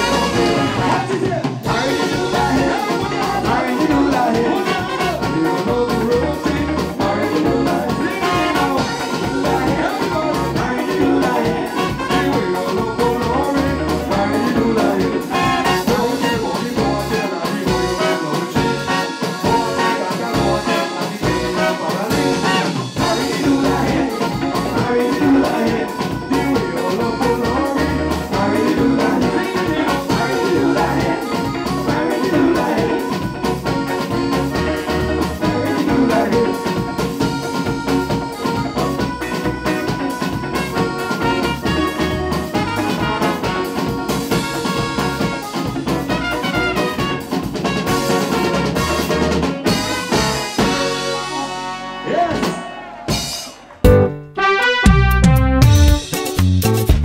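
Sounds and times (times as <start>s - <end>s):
people singing: 0.0s - 40.2s
bass guitar: 0.0s - 57.0s
drum kit beat: 0.0s - 57.0s
electric guitar: 0.0s - 57.0s.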